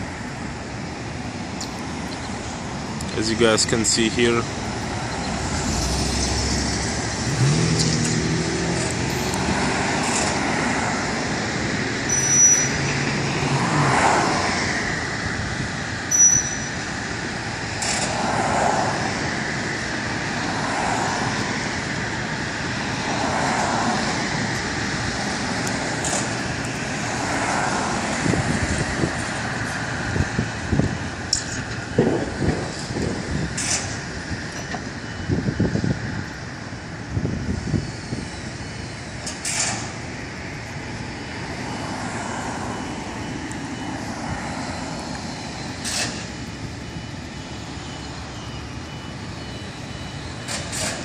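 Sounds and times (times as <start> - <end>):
cars and trucks passing: 0.0 - 51.0
brief high squeaks: 12.1 - 12.8, 16.1 - 16.7.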